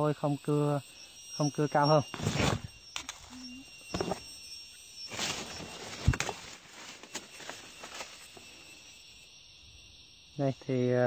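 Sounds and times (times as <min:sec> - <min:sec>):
faint insect trill: 0:00.0 - 0:11.0
leaves rustling: 0:05.1 - 0:08.9.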